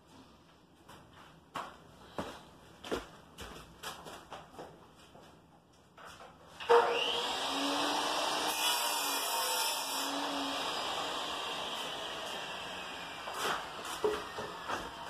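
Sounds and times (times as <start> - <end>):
electric tile saw running: 6.6 - 15.0.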